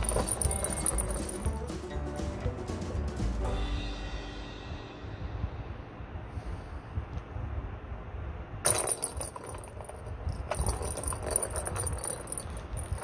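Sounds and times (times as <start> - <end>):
ball rattling in plastic track: 0.0 - 1.6, 8.7 - 13.0.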